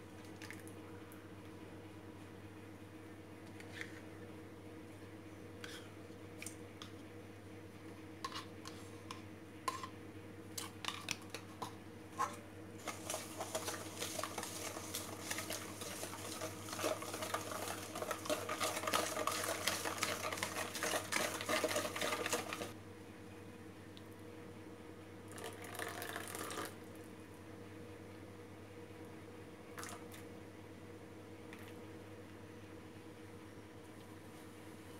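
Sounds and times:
whisk scraping metal bowl: 0:08.3 - 0:08.8, 0:12.2 - 0:22.8.

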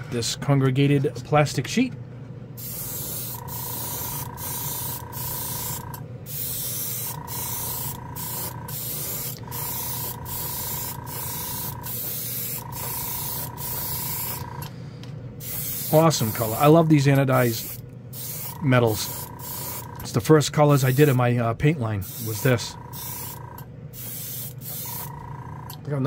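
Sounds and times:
air compressor hum: 0:02.4 - 0:25.8
airbrush spraying hiss: 0:02.6 - 0:14.5, 0:15.4 - 0:16.7, 0:17.4 - 0:19.9, 0:20.7 - 0:21.2, 0:22.0 - 0:23.4, 0:24.0 - 0:25.1.

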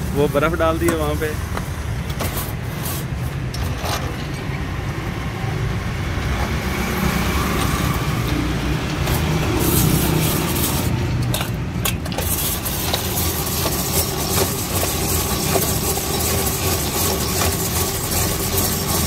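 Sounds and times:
ice shaver rasping: 0:07.1 - 0:19.0.

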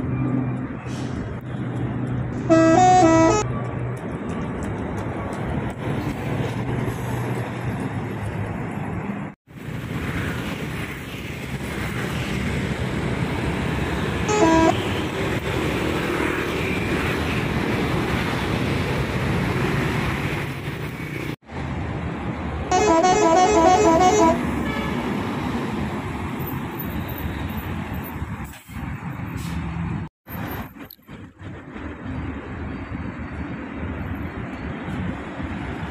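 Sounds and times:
bus engine: 0:00.0 - 0:35.9
multi-tone musical air horn: 0:02.5 - 0:03.4, 0:14.3 - 0:15.0, 0:22.7 - 0:25.0.

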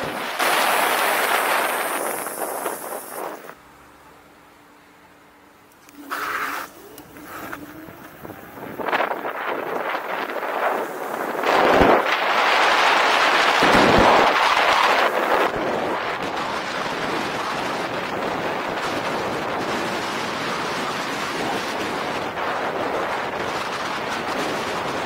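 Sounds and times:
wind rushing over microphone: 0:00.0 - 0:03.6, 0:06.0 - 0:25.0.

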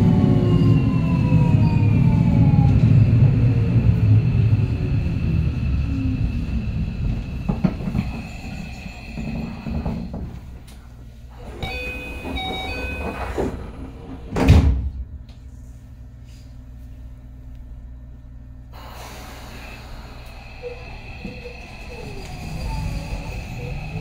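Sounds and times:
train car humming: 0:00.0 - 0:24.0
sliding doors: 0:07.0 - 0:14.9, 0:18.8 - 0:24.0.

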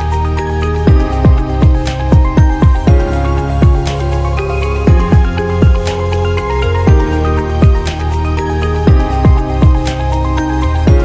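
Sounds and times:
deep bass hits dropping in pitch: 0:00.9 - 0:08.2.

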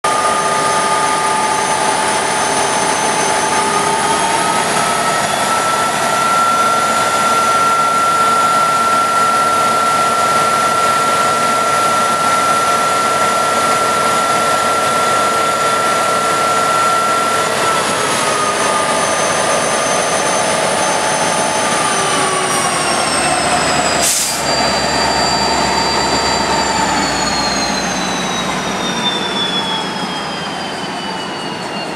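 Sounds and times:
locomotive engine whine: 0:00.0 - 0:31.9.

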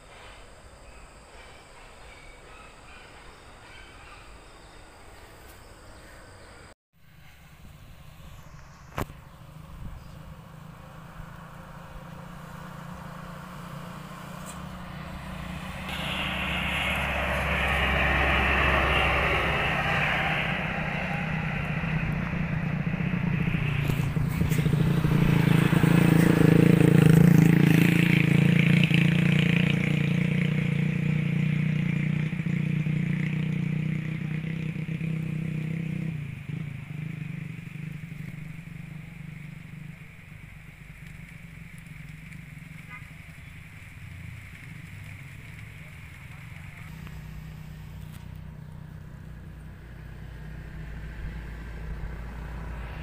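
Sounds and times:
diesel truck driving past: 0:00.0 - 0:53.0.

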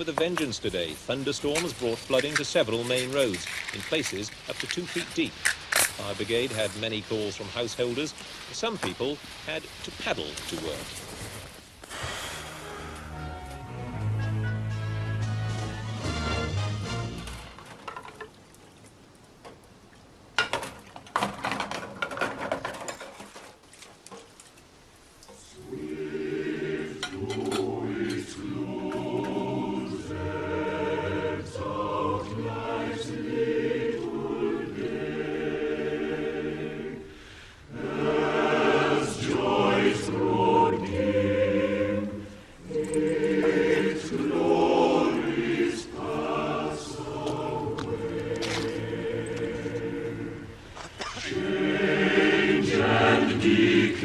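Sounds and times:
choir singing sustained chords: 0:12.4 - 0:17.4, 0:25.4 - 0:54.0.

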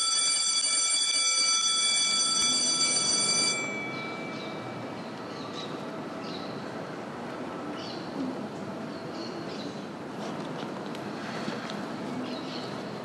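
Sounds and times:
electric bell ringing: 0:00.0 - 0:05.0.

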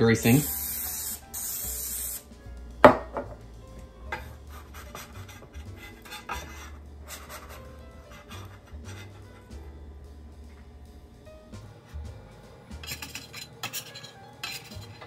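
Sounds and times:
cooking spray hissing: 0:00.0 - 0:15.0
sharp knock: 0:02.8 - 0:03.4
scraper scraping on cutting board: 0:04.5 - 0:09.4.

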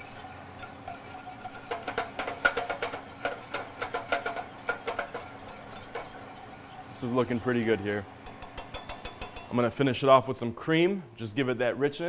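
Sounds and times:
wire whisk scraping metal saucepan: 0:00.0 - 0:09.6.

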